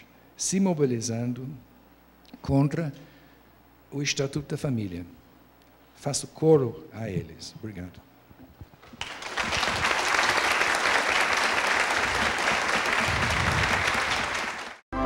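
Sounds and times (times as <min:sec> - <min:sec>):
audience applauding: 0:08.8 - 0:14.8.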